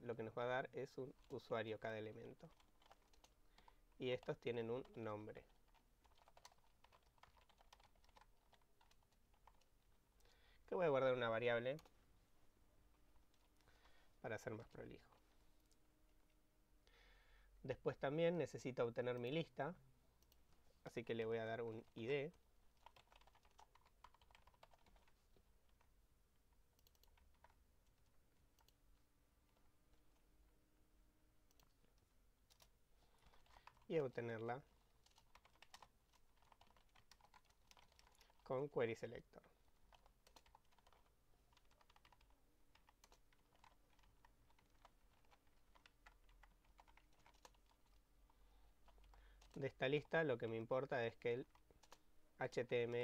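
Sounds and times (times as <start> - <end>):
typing on computer keyboard: 2.4 - 9.7, 21.8 - 25.9, 26.8 - 27.6, 32.5 - 34.0, 34.7 - 38.5, 39.8 - 48.0, 48.8 - 50.1, 51.4 - 52.0.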